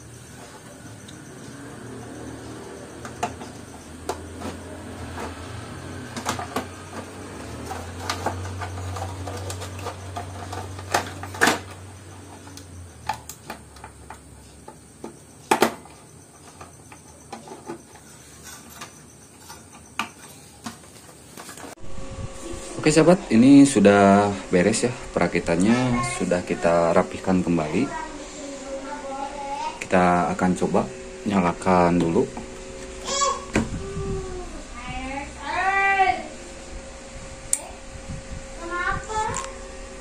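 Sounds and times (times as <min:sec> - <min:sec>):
low hum: 0:21.8 - 0:40.0.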